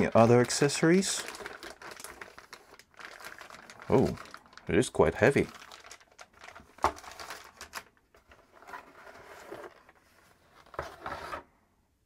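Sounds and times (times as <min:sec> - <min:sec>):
cardboard scraping and rustling: 0:06.8 - 0:11.5.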